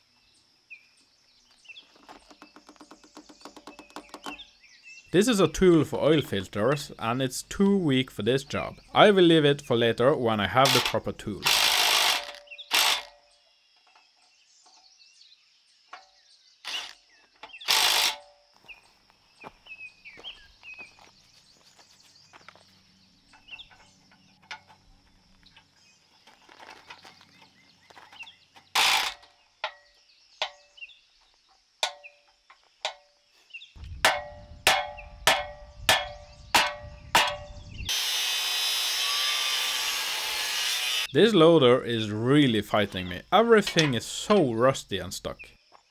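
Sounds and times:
metal tools striking metal: 34.0 - 37.5, 43.5 - 44.5.

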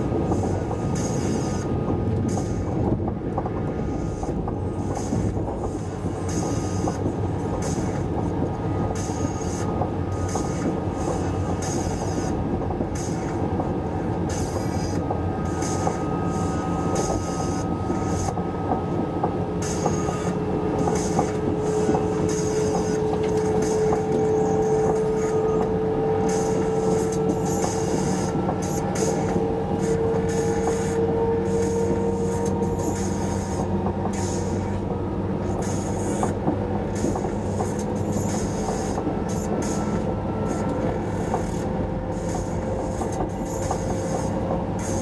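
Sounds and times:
steady whine: 0.0 - 45.0
train wheels rumbling on rail: 0.0 - 45.0.

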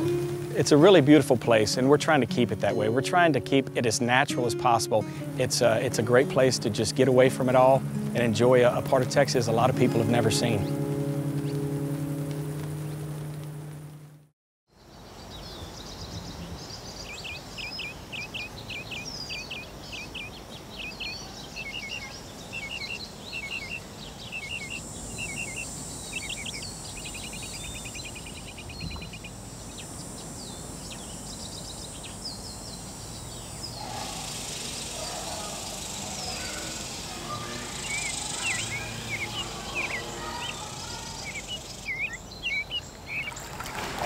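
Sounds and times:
small birds chirping: 0.0 - 13.4, 14.8 - 43.9
steady high hiss: 0.0 - 14.2, 14.8 - 43.5
buzzy bird trill: 17.0 - 43.6.

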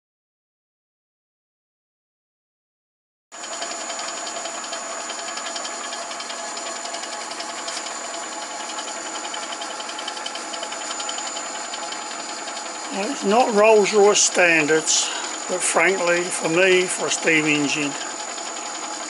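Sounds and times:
lathe running: 3.4 - 19.0.

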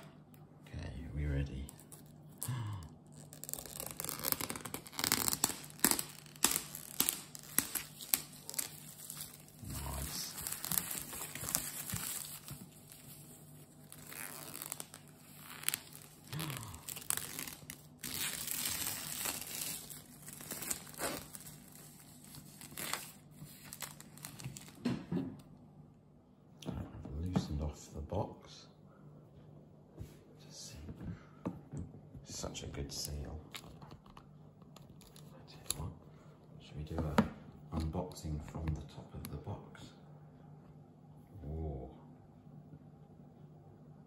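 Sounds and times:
plastic film crinkling being peeled: 1.7 - 24.8.

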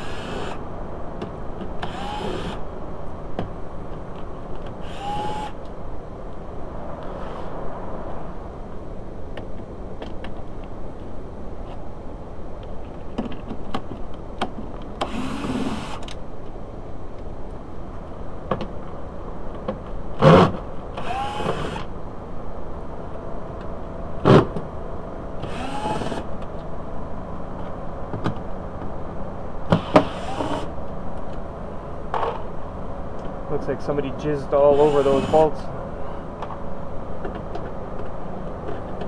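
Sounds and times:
cordless drill spinning: 0.0 - 0.6, 1.8 - 2.6, 4.8 - 5.6, 21.0 - 21.8, 25.5 - 26.2, 30.0 - 30.7.

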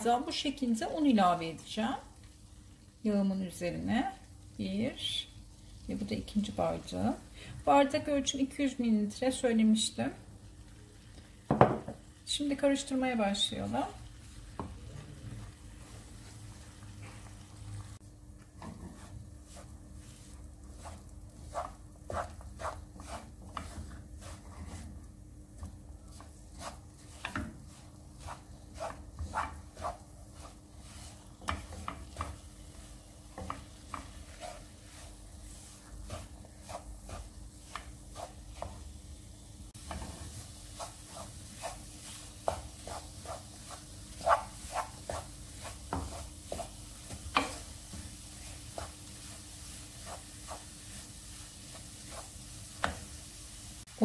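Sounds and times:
faint sizzle: 0.0 - 54.0
wooden spoon scraping a pan: 18.5 - 38.9, 39.7 - 53.5.

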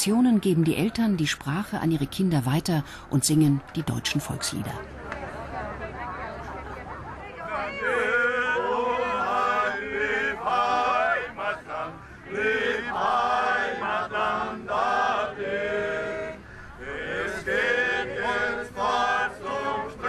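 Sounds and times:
group singing a folk song: 7.4 - 20.0.

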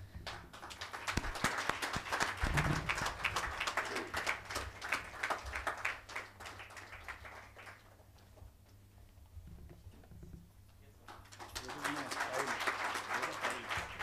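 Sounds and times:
audience applauding: 0.0 - 8.1, 11.1 - 14.0.

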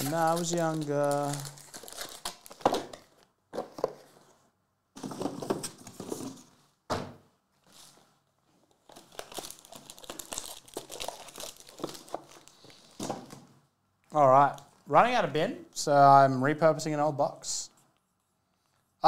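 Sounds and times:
foil wrappers crinkling: 0.0 - 3.0, 8.9 - 12.8.

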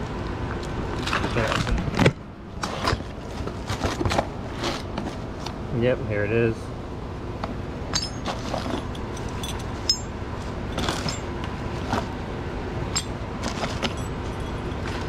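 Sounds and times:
metal buckles clinking: 7.9 - 12.0, 12.9 - 15.0.

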